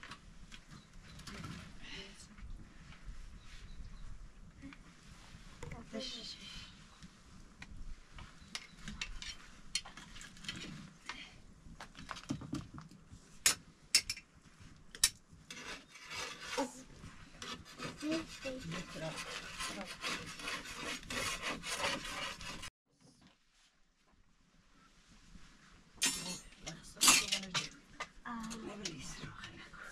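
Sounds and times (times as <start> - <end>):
scraping on griddle: 15.5 - 22.7.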